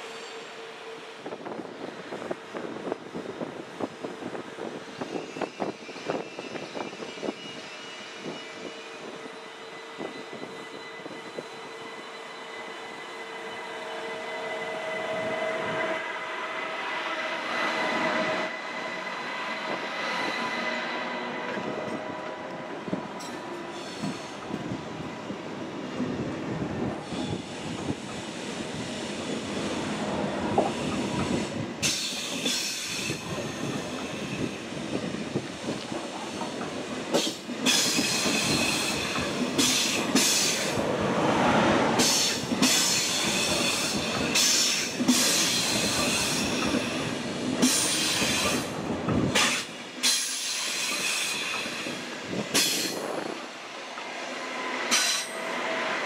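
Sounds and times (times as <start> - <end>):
train rumbling past: 0.0 - 56.0
high wheel squeal: 4.9 - 16.1.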